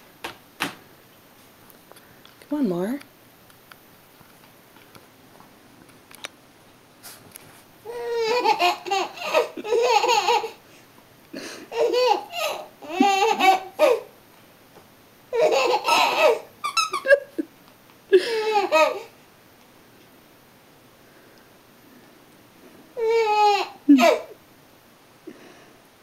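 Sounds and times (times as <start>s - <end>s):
baby laughing: 7.9s - 10.6s, 11.7s - 14.1s, 15.3s - 17.4s, 18.2s - 19.1s, 23.0s - 24.4s.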